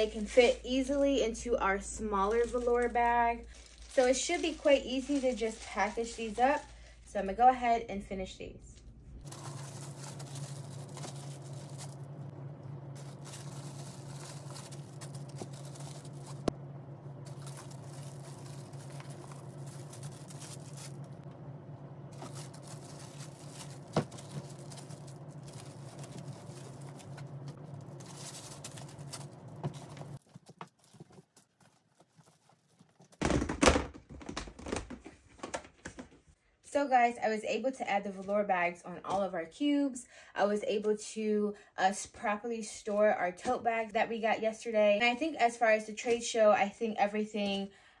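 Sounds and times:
plastic and fabric rustling: 0.0 - 7.5, 9.2 - 21.3, 22.0 - 36.4
steady low hum: 0.0 - 30.2
plastic tub knocking and scraping: 33.0 - 36.2.

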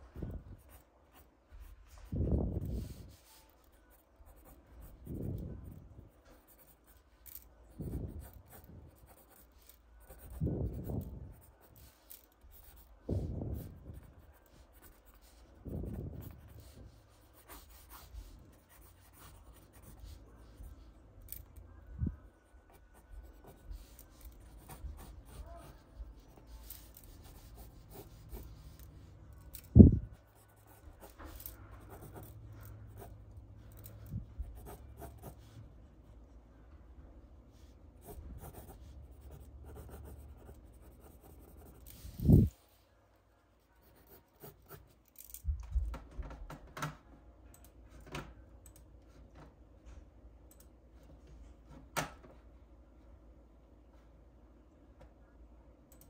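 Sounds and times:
pencil sketching on paper: 0.6 - 5.1, 6.4 - 20.9, 22.7 - 29.1, 30.1 - 33.1, 34.4 - 35.6, 38.0 - 42.5.

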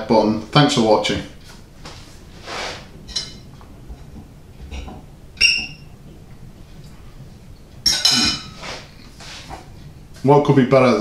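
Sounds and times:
soft rush of breath: 2.0 - 3.0
crockery clinking: 3.1 - 3.5, 4.7 - 5.9, 7.8 - 8.7.

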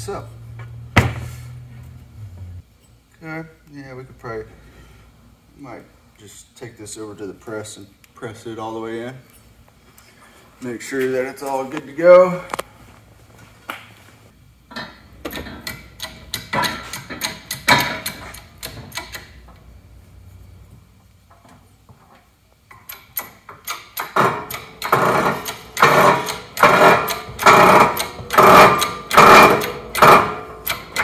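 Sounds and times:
metal clunks and clicks: 14.7 - 19.6, 22.7 - 31.0
jack pump handle strokes: 22.9 - 31.0.

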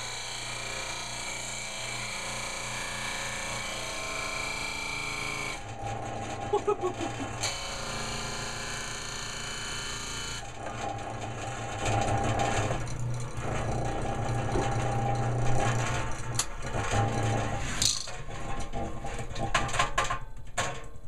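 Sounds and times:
electric disc sander running: 0.0 - 5.6, 6.8 - 10.5.

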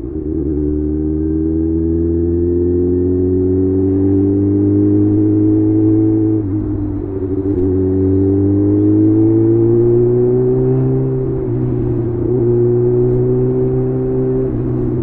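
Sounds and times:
motorcycle engine revving under throttle: 0.0 - 15.0.

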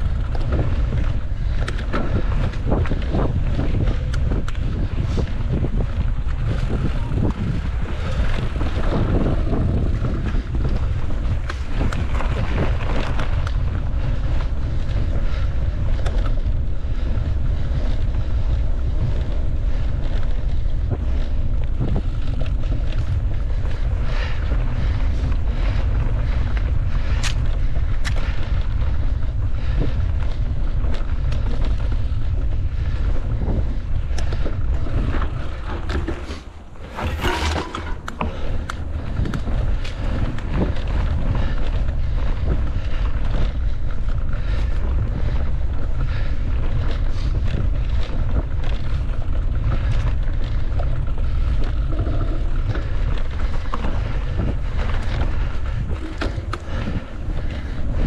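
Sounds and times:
wind rumble on microphone: 0.0 - 58.0.

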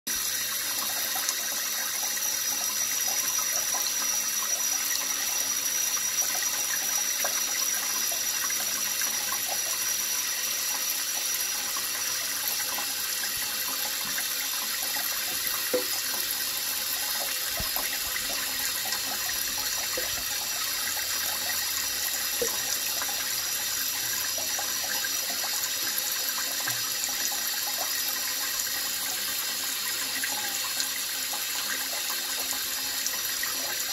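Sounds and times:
tap running into sink: 10.8 - 28.0.

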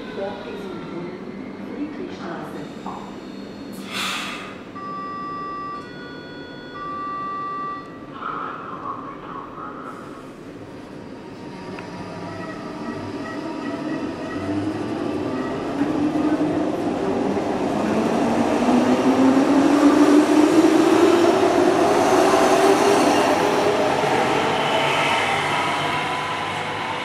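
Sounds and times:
electric train accelerating: 10.9 - 27.0.

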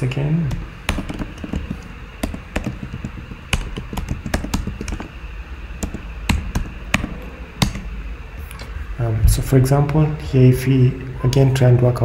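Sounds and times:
typing on keyboard: 0.5 - 5.1, 5.8 - 7.8.

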